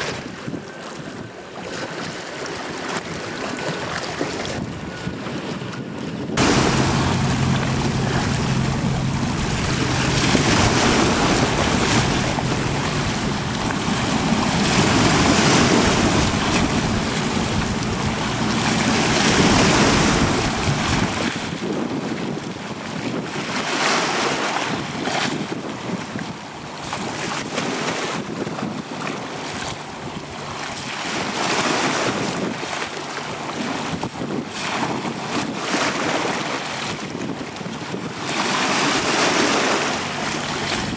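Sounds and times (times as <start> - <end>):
choppy water: 0.0 - 40.9
wind buffeting microphone: 0.0 - 40.9
ferry engine hum: 6.4 - 21.6, 38.4 - 40.9.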